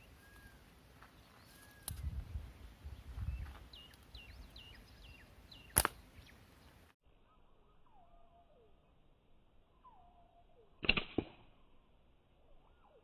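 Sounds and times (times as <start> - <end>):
small bird chirping: 2.8 - 9.0
slingshot snap: 5.7 - 6.0, 10.8 - 11.5.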